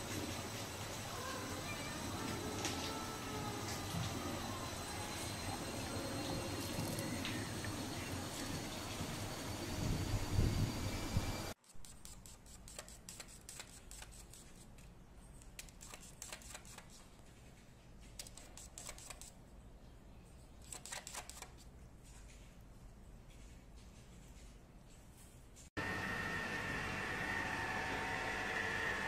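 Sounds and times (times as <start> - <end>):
low steady hum: 0.0 - 11.6.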